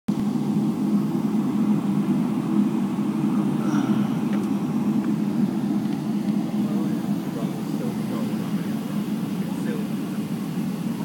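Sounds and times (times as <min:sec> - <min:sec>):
jet engine cabin rumble: 0:00.1 - 0:11.0.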